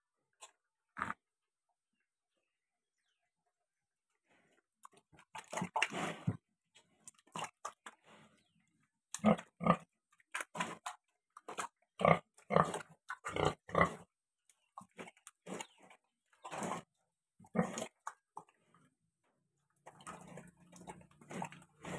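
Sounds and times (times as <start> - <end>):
pig slurping and chomping: 4.8 - 8.0, 9.2 - 14.0, 14.7 - 18.9, 19.7 - 21.9.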